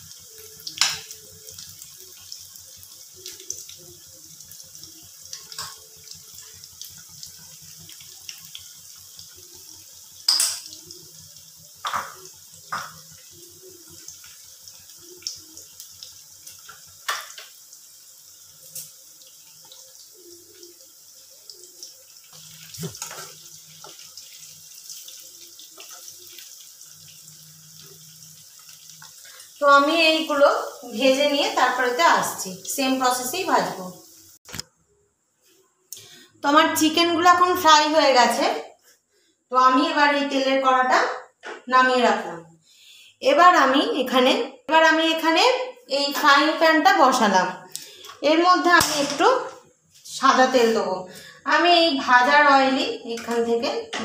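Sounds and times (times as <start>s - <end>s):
chicken deep-frying in oil: 0.0s - 34.6s.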